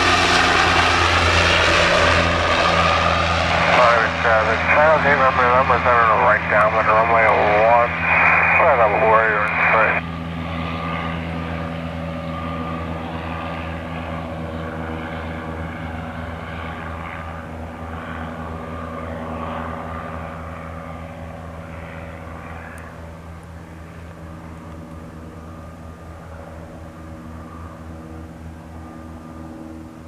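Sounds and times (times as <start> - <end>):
propeller plane engine droning: 0.0 - 30.0.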